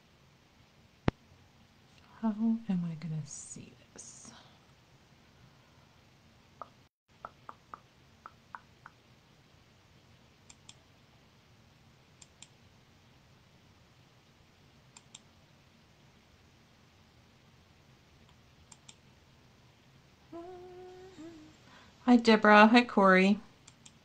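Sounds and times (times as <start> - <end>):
computer mouse clicks: 10.5 - 10.8, 12.2 - 12.6, 14.9 - 15.3, 18.2 - 19.0, 23.6 - 24.0.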